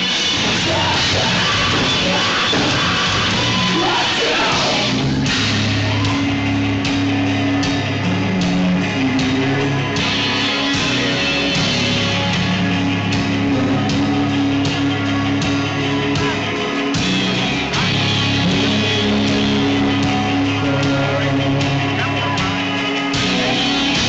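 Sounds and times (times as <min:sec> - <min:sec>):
drum kit with cymbals: 0:00.0 - 0:24.0
electric guitars: 0:00.0 - 0:24.0.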